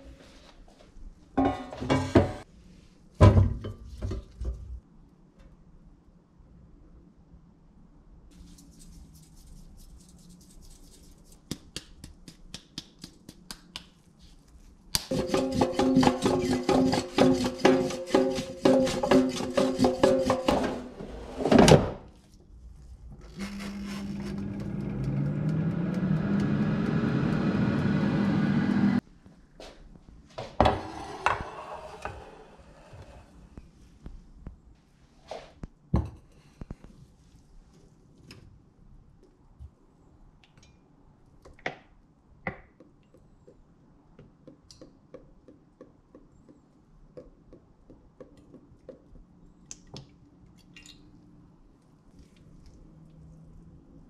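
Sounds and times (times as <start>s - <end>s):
air fryer fan humming: 23.4s - 29.0s.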